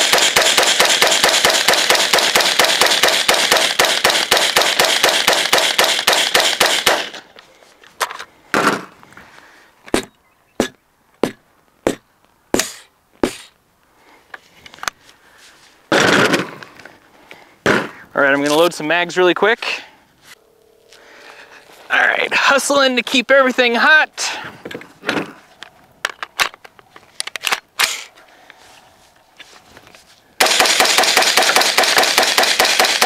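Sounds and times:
rifle firing rapid shots: 0.0s - 7.2s, 30.4s - 33.0s.

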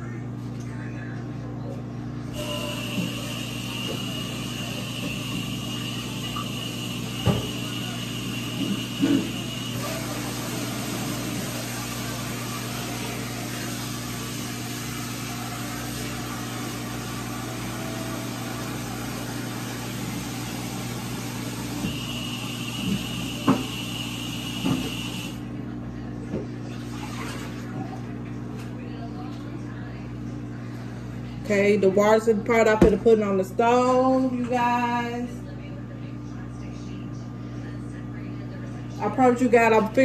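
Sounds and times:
microwave oven humming: 0.0s - 40.0s
thin high whine: 2.3s - 11.5s.

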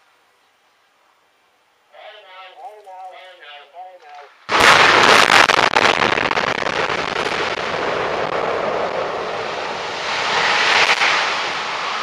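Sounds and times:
rumble of tower collapsing: 4.5s - 12.0s.

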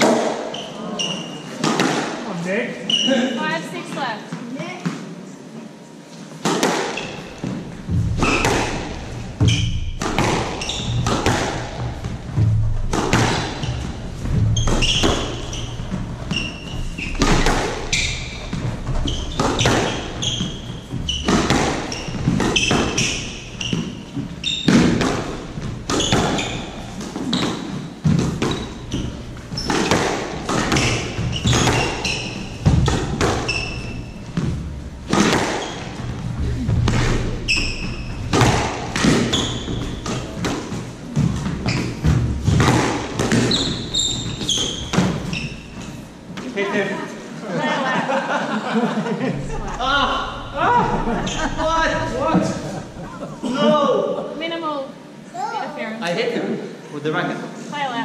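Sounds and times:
shoes squeaking on wooden floor: 0.0s - 2.0s, 6.0s - 46.9s, 49.4s - 53.6s
squash ball knocks: 6.4s - 33.5s, 34.4s - 36.1s, 36.7s - 45.3s.

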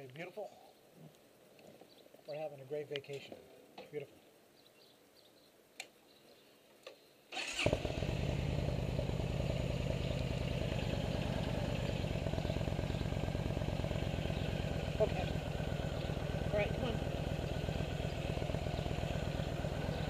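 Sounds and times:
motorcycle engine idling: 7.4s - 20.0s.

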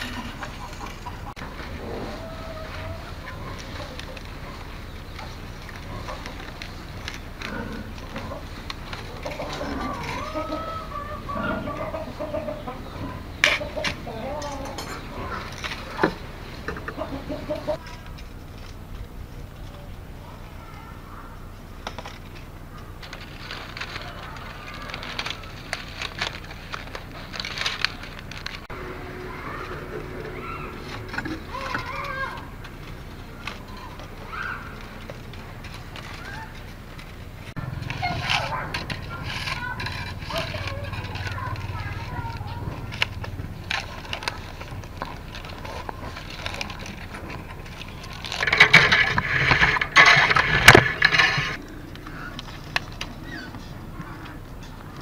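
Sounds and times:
bamboo basket crackling and creaking: 0.0s - 55.0s
bamboo scraping microphone: 37.5s - 51.6s.

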